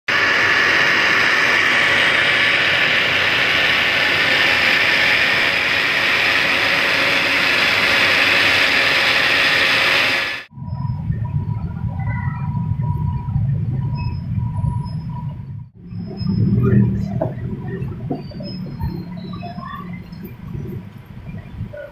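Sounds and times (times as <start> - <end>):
electric blender motor running: 0.1 - 10.5.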